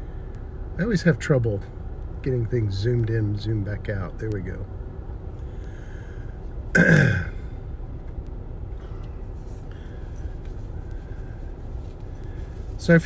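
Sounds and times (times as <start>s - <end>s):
car cabin rumble: 0.0s - 13.0s
man clearing throat: 6.7s - 7.5s.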